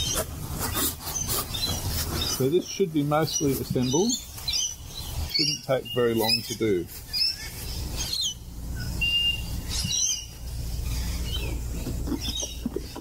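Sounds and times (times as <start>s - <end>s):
parrots chirping and calling: 0.0s - 13.0s
steady low rumble: 6.8s - 13.0s.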